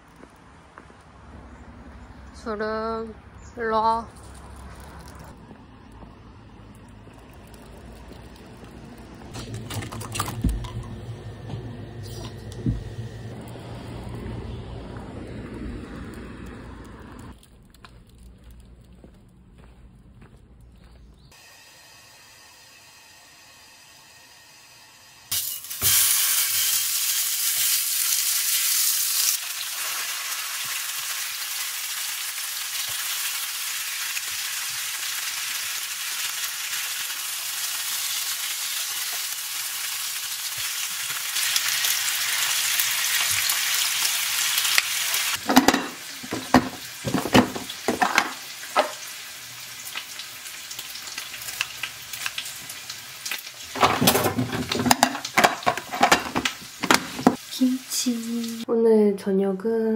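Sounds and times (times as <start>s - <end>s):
meat sizzling in a pan: 25.3s - 58.6s.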